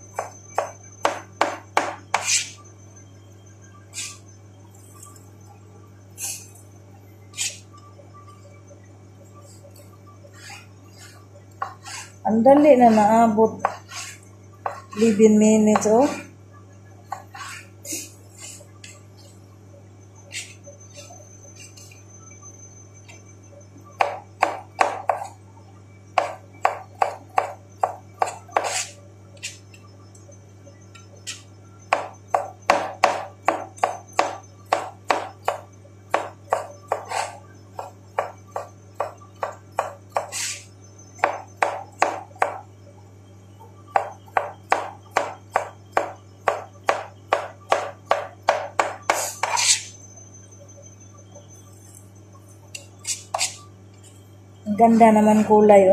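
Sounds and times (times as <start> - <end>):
steady low hum: 0.0 - 55.9
knife chopping on cutting board: 0.2 - 2.5, 24.0 - 25.3, 26.2 - 29.6, 31.9 - 40.6, 41.2 - 42.6, 44.0 - 49.9.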